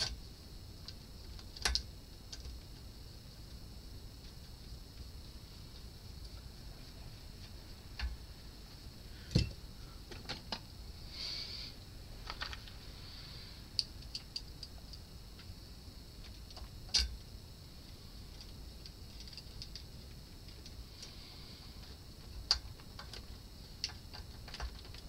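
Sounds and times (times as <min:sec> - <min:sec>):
small metallic clicks and taps: 0:00.8 - 0:02.6, 0:16.2 - 0:17.2, 0:21.8 - 0:25.0.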